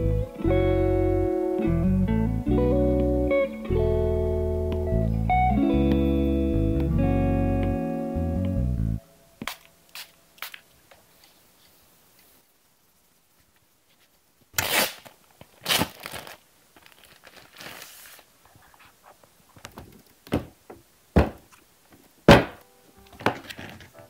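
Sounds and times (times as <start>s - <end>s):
cloth and case rustling: 15.6s - 20.5s, 22.4s - 24.0s.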